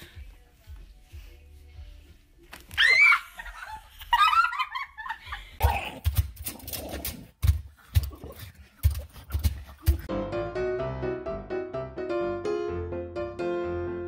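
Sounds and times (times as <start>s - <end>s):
giggling laughter: 3.0s - 5.6s.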